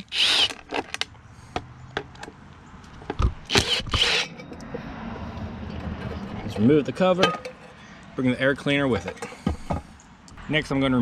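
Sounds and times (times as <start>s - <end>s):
power driver spinning bolts: 3.0s - 4.7s.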